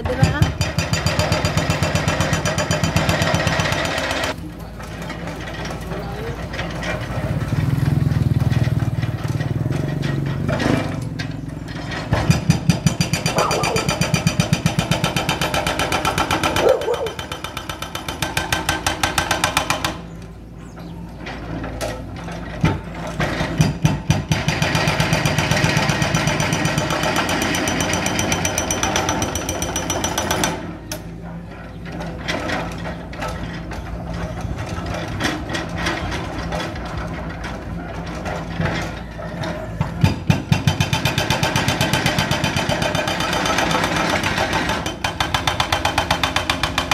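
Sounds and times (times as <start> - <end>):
hydraulic drill hammering concrete: 0.0 - 4.4, 11.8 - 20.2, 22.5 - 31.2, 32.3 - 46.9
excavator engine running: 0.0 - 46.9.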